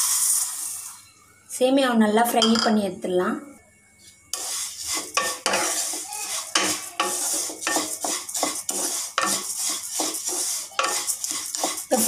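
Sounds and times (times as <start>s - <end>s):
oil sizzling: 0.0s - 1.0s, 4.3s - 12.0s
wooden spatula scraping frying pan: 4.3s - 12.0s.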